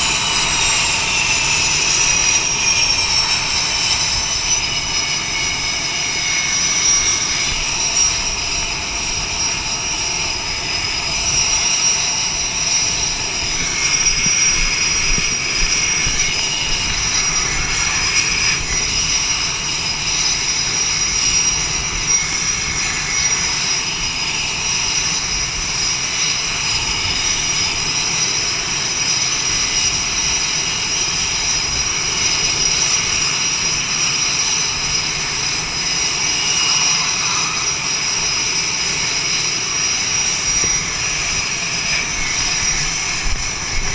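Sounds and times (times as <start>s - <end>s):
jet engines whining: 0.0s - 43.9s.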